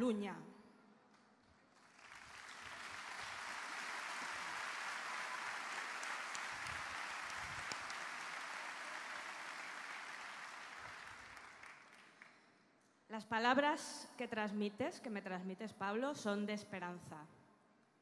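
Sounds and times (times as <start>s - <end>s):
large audience applauding: 1.4s - 12.4s.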